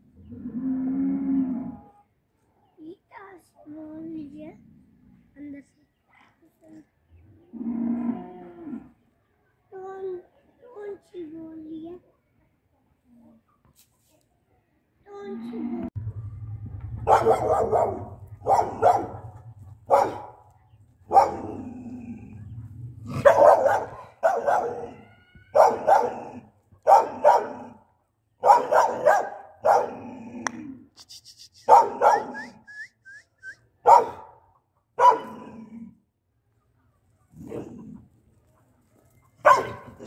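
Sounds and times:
dog barking aggressively: 0:17.0 - 0:21.8, 0:23.0 - 0:27.8, 0:28.4 - 0:30.2, 0:31.7 - 0:32.4, 0:33.8 - 0:34.4, 0:35.0 - 0:35.6, 0:39.4 - 0:40.0.

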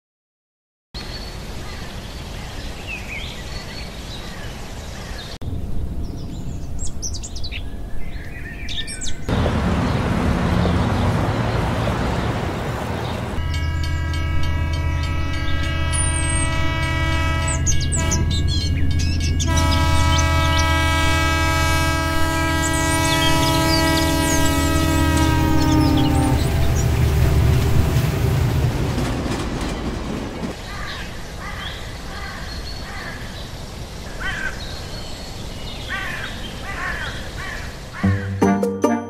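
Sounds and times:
birds chirping: 0:06.0 - 0:38.6
low train drone: 0:09.3 - 0:30.6.

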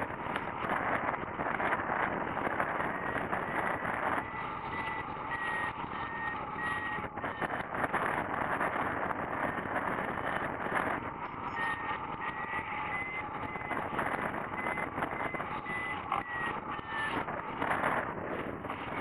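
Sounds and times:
wind rushing over camera: 0:00.0 - 0:19.0
variometer beeping: 0:02.6 - 0:08.1, 0:09.4 - 0:18.0.

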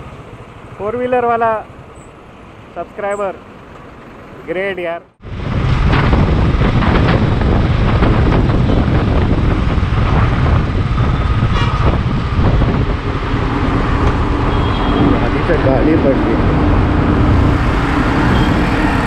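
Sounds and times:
wind noise on microphone: 0:05.2 - 0:19.0.

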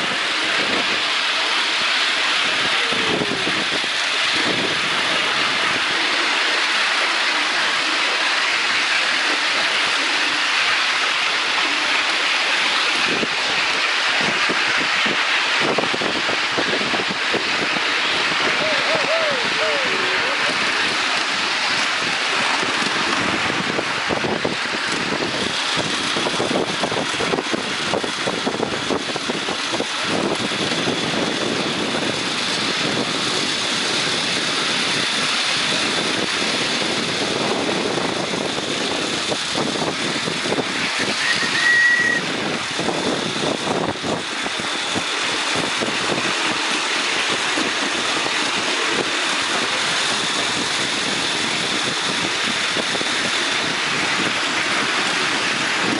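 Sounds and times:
small wheels clattering on rails: 0:00.0 - 0:55.9
wind on microphone: 0:00.0 - 0:55.9
brief high tone: 0:41.2 - 0:42.2.

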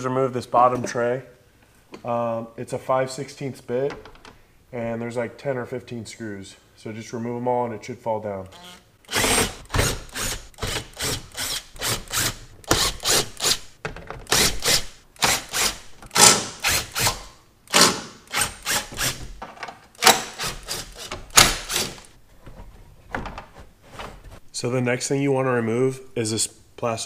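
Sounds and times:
impact driver hammering screws: 0:08.6 - 0:13.7, 0:14.3 - 0:19.3, 0:20.0 - 0:22.1.

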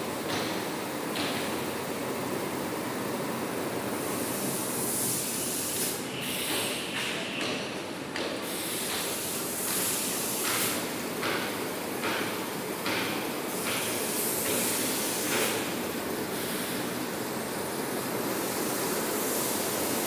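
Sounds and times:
hissing bursts: 0:04.0 - 0:07.5, 0:08.4 - 0:11.4, 0:13.5 - 0:20.0.

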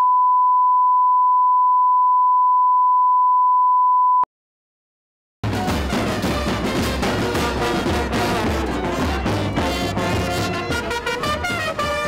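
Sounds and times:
steady test tone beep: 0:00.0 - 0:04.3.

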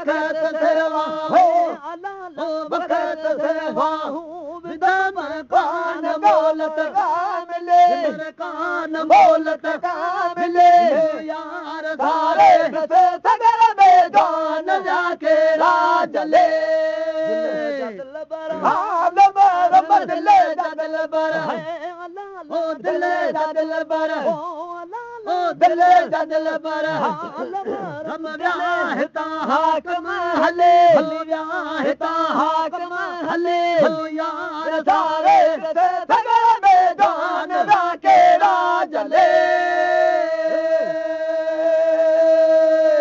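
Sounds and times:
man chanting devotional song: 0:00.0 - 0:43.0.

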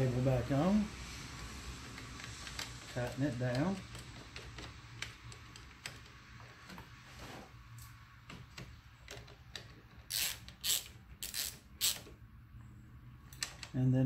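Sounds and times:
ratchet clicking: 0:10.1 - 0:12.1.

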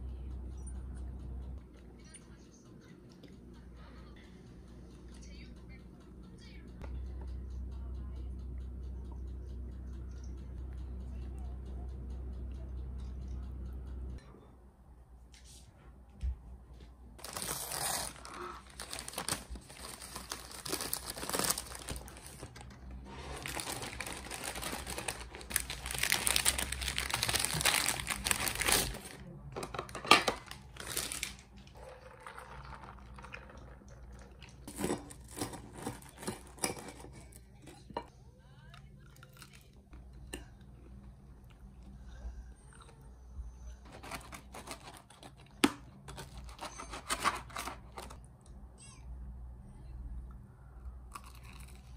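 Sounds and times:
paper wrapper crinkling and tearing: 0:17.2 - 0:29.2, 0:30.4 - 0:31.5, 0:43.9 - 0:48.2.

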